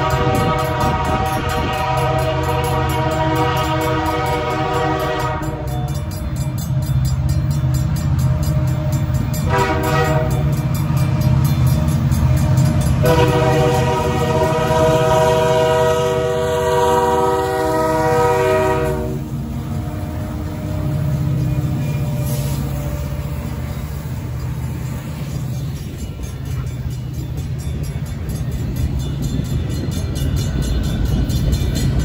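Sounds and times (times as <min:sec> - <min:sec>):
locomotive horn blasts: 0:00.0 - 0:05.9, 0:09.4 - 0:10.6, 0:12.9 - 0:21.1
crossing bell dinging rapidly: 0:00.0 - 0:32.0
diesel locomotive rumble: 0:00.0 - 0:32.0.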